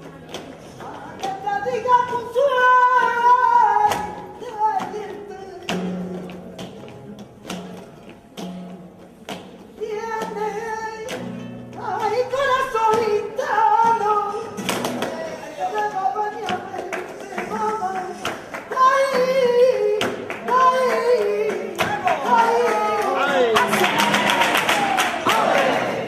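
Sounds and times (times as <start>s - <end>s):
flamenco guitar: 0.0s - 26.0s
hand claps: 3.8s - 26.0s
woman singing: 15.4s - 23.4s.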